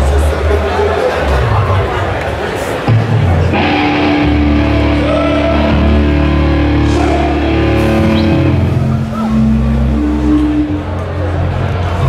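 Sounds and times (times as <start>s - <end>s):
distorted electric guitars: 2.9s - 11.9s
bass guitar: 2.9s - 12.0s.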